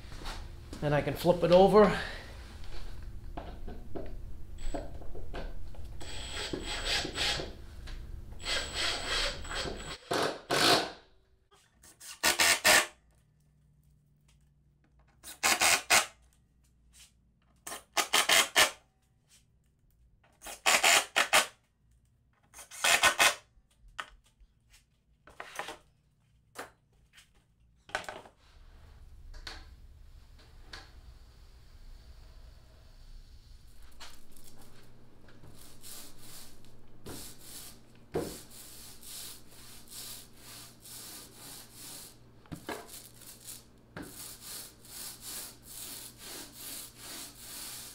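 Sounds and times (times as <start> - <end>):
cordless drill driving screws: 8.4 - 10.9, 15.2 - 16.1, 20.5 - 21.5, 22.6 - 23.4.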